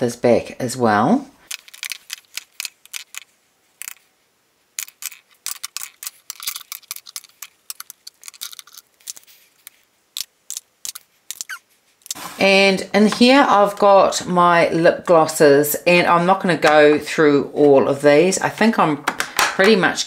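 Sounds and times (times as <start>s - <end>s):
plastic tubes clicking on acrylic: 1.5s - 4.0s, 4.8s - 12.2s.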